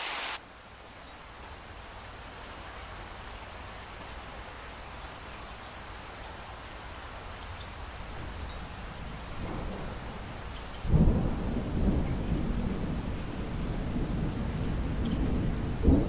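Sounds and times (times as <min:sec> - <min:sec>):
steady rain falling: 0:00.0 - 0:16.0
thunder rumbling: 0:09.0 - 0:16.0.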